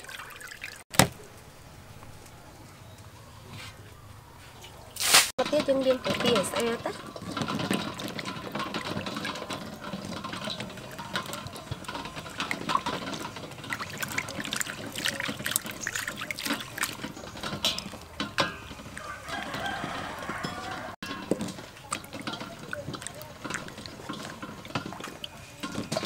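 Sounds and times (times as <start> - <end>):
water splashing in a bowl: 0.0 - 0.8, 5.0 - 26.0
rooster crowing: 18.7 - 21.0.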